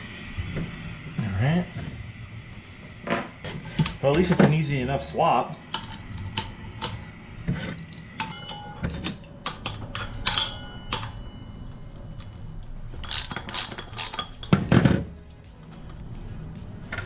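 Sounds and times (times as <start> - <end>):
metal tool clinks and clicks: 8.1 - 11.3, 13.0 - 14.7.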